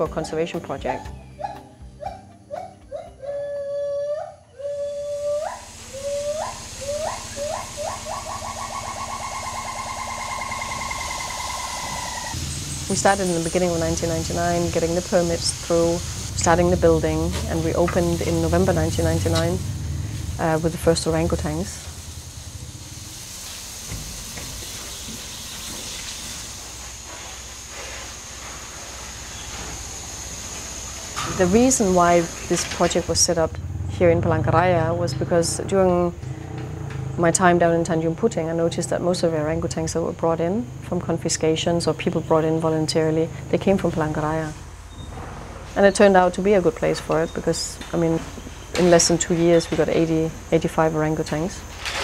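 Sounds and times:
whistled animal call: 1.4 - 12.4
steady hissing noise: 4.4 - 52.0
thin high whine: 4.8 - 33.7.

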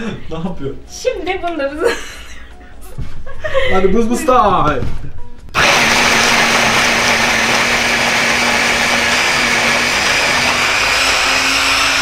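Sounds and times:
electric hand blender whirring: 5.5 - 12.0.

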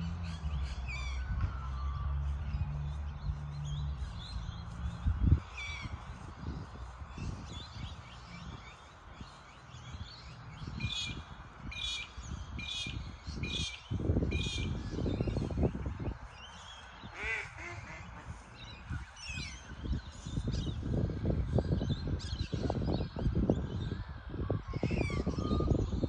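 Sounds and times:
low rumbling gusts: 2.4 - 26.0
birds calling: 2.9 - 21.0.

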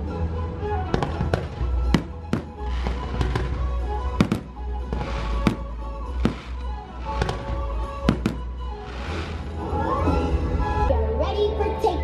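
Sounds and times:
music soundtrack: 0.0 - 12.0
fireworks bangs: 0.9 - 9.6.

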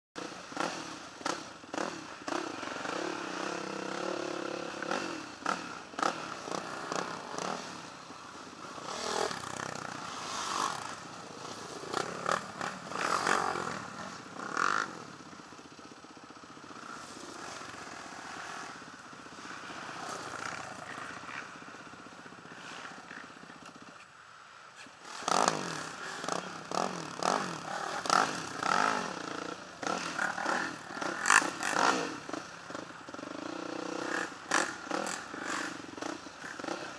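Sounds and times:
quad revving past: 0.2 - 15.2, 25.0 - 36.9
atv engine running: 0.2 - 24.0, 25.0 - 36.9.

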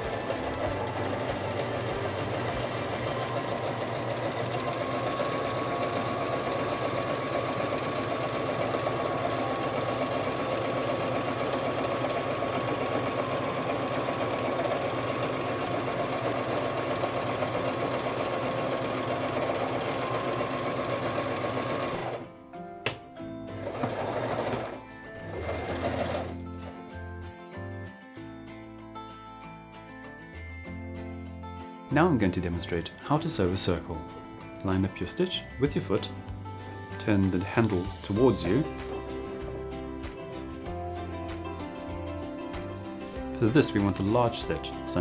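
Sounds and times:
sewing machine stitching: 0.0 - 22.3, 23.5 - 26.8.

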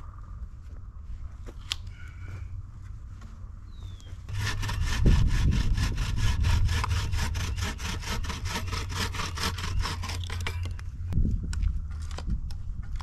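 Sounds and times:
bow saw sawing through log: 4.3 - 10.7.

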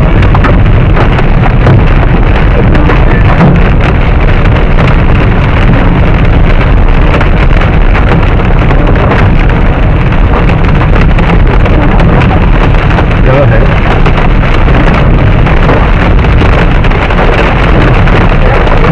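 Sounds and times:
hail and rain on car roof: 0.0 - 18.9.

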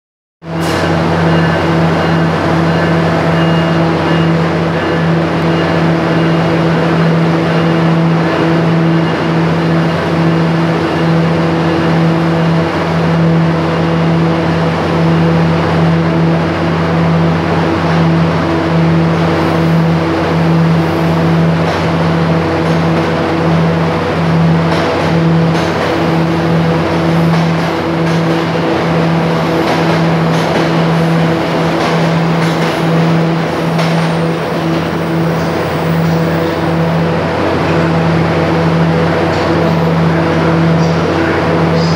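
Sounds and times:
electric locomotive hum: 0.4 - 41.9
train wheels clicking over rails: 19.1 - 37.0.

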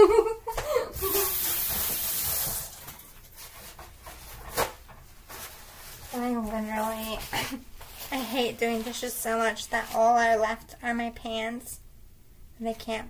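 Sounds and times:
water running from tap: 1.0 - 3.0.

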